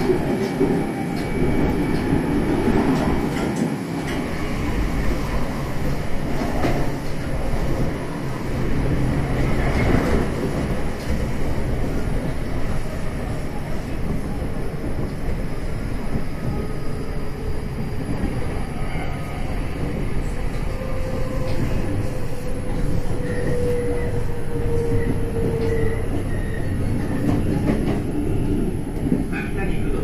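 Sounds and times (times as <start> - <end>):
train wheels rumbling on rail: 0.0 - 30.0.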